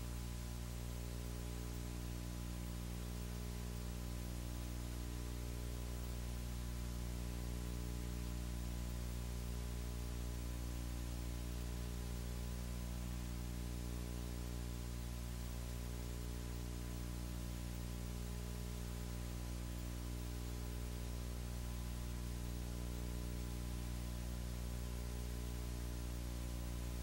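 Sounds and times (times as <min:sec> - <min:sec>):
constant hiss: 0:00.0 - 0:27.0
electrical hum: 0:00.0 - 0:27.0.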